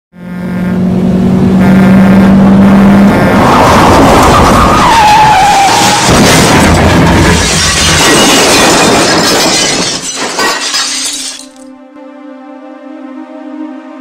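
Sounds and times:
loud low hum: 0:00.1 - 0:03.4
loud wavering screech: 0:03.3 - 0:06.2.

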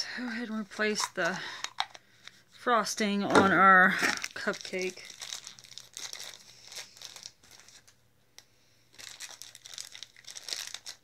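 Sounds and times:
plastic packaging crinkling: 0:03.4 - 0:08.0, 0:08.9 - 0:11.0.

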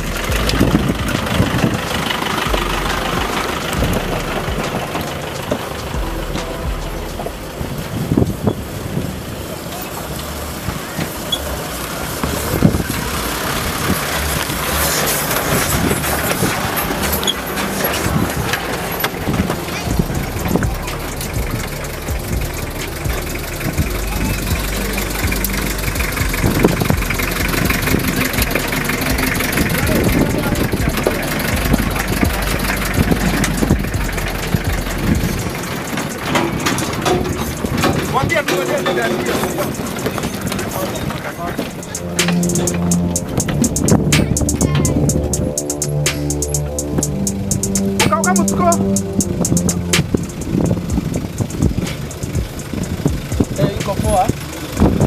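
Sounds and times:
off-road vehicle engine low revs: 0:00.0 - 0:55.0
tyres crunching on gravel: 0:00.0 - 0:55.0.

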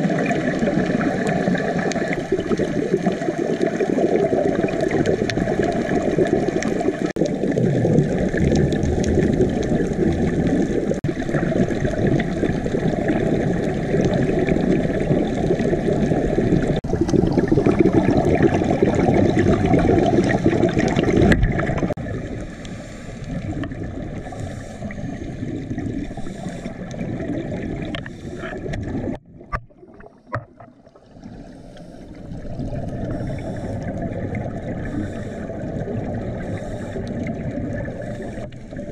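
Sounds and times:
exhaled bubbles gurgling: 0:00.0 - 0:38.9
muffled underwater noise: 0:00.0 - 0:38.9.

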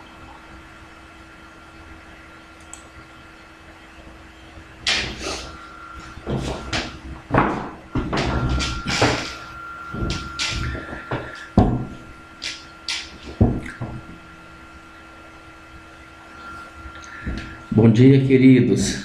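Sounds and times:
faint steady hum: 0:00.0 - 0:19.0
irregular knocks and bumps: 0:06.0 - 0:14.2.

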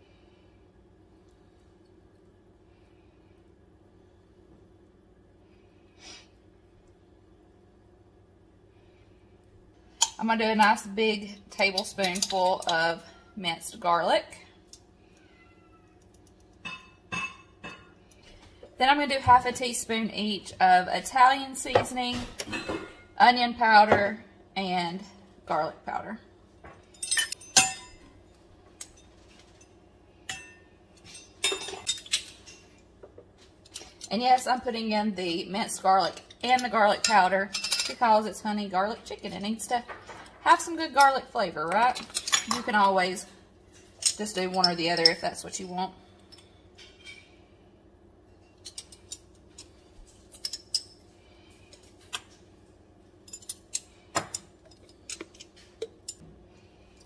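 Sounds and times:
faint low hum: 0:00.0 - 0:57.0
metal measuring spoons clinking: 0:11.6 - 0:13.0, 0:27.0 - 0:28.0
metal spoons clinking on glass jars: 0:11.6 - 0:13.0, 0:26.9 - 0:28.0, 0:36.1 - 0:38.0, 0:44.0 - 0:45.3, 0:53.2 - 0:56.2.

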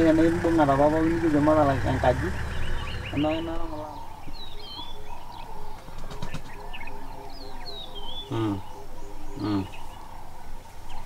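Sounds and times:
birds chirping: 0:00.0 - 0:11.0
lion grunting calls: 0:06.9 - 0:10.4.

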